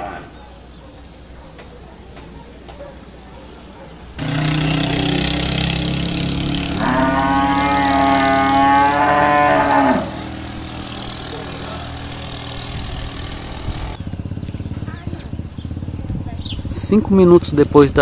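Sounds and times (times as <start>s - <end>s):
cow mooing: 0.0s - 0.4s, 4.2s - 14.0s.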